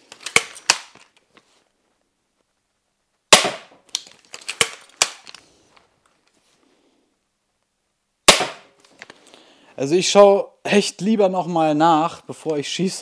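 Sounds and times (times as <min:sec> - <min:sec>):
crossbow shot snap: 0:03.3 - 0:03.8, 0:08.3 - 0:08.7.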